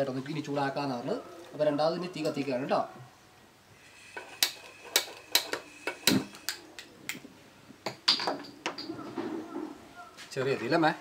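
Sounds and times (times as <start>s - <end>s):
gas stove igniter clicking: 4.2s - 6.6s.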